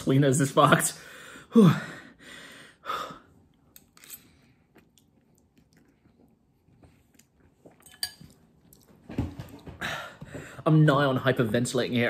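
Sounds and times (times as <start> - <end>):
man chewing noodles: 3.5 - 8.9.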